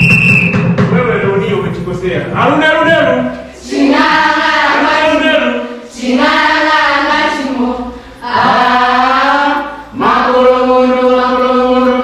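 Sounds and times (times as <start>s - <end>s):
young female voices singing: 3.5s - 12.0s.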